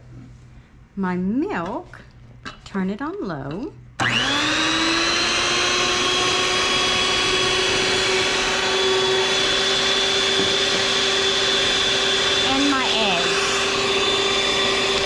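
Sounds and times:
electric stand mixer humming: 0:04.0 - 0:15.0.

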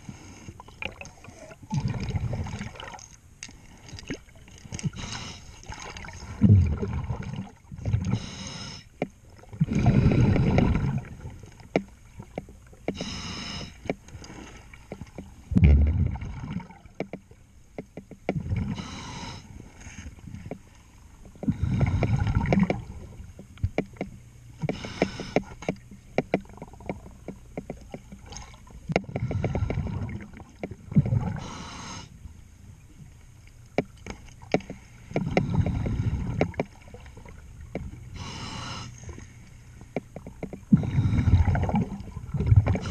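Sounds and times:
underwater exhaled breath bubbles: 0:00.6 - 0:03.0, 0:04.9 - 0:08.6, 0:09.5 - 0:11.4, 0:15.5 - 0:16.9, 0:21.4 - 0:23.2, 0:29.0 - 0:31.8, 0:40.7 - 0:42.9
clicks and scrapes on hull: 0:11.4 - 0:16.2, 0:16.9 - 0:18.4, 0:19.8 - 0:31.2, 0:33.4 - 0:40.8.

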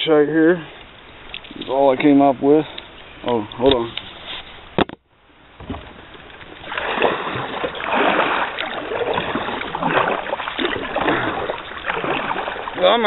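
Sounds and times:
kayak paddle splashing: 0:04.0 - 0:13.0.

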